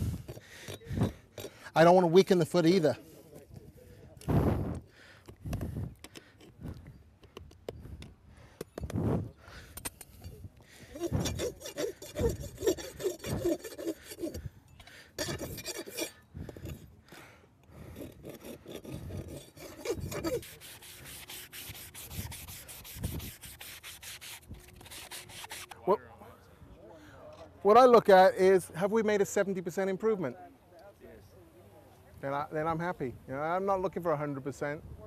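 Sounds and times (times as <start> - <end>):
rasp scraping: 0.0 - 3.4, 5.2 - 16.9, 17.7 - 25.8.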